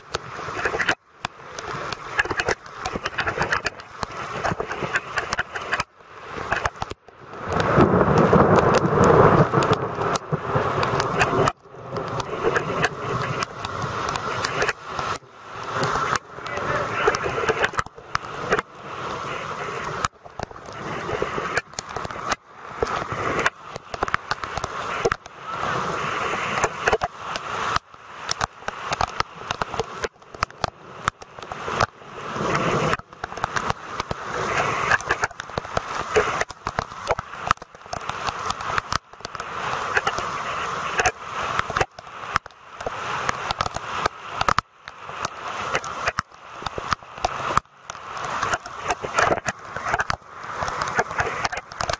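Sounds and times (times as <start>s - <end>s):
rain: 0.0s - 51.9s
rushing floodwater: 0.0s - 51.9s.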